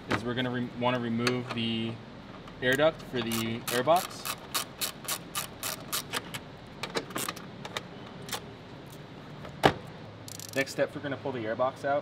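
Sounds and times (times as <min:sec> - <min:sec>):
hand ratchet clicking: 0:03.2 - 0:06.2, 0:10.3 - 0:10.7.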